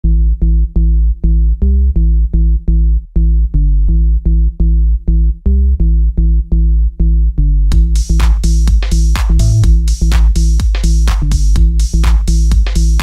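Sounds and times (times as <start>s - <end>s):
electronic synthesizer music: 9.3s - 10.0s.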